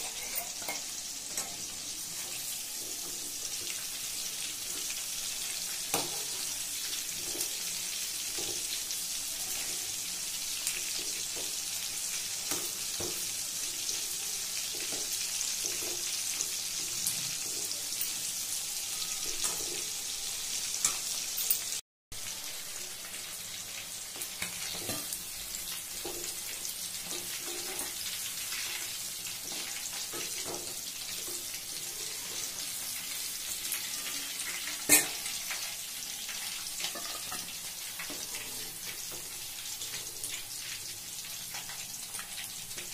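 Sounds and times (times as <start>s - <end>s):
metal spoon scraping pan: 0.0s - 2.6s, 33.6s - 35.7s
chicken deep-frying in oil: 0.0s - 42.9s.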